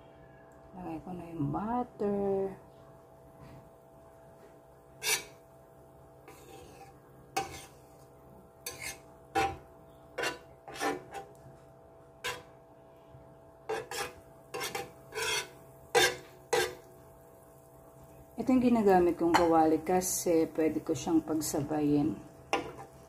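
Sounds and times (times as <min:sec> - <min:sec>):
utensil spreading butter on pan: 0:05.0 - 0:05.4, 0:06.3 - 0:07.8, 0:08.6 - 0:09.6, 0:10.2 - 0:11.4, 0:13.7 - 0:16.9.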